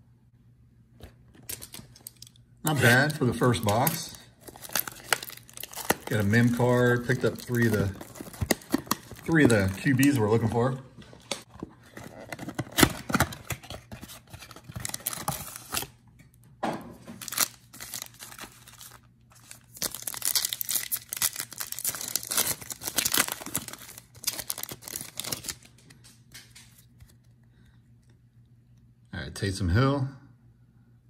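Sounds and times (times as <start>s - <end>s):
cards rustling: 1.3s - 15.9s, 17.2s - 27.3s
card pack wrapper crinkling: 1.4s - 16.0s, 17.2s - 27.2s
cardboard box tearing open: 4.5s - 9.7s, 11.9s - 15.9s, 19.8s - 25.5s.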